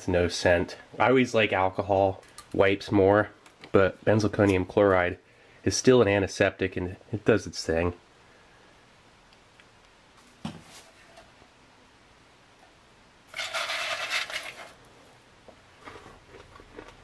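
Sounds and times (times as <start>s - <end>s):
loud scrape on metal tray: 13.3s - 14.8s.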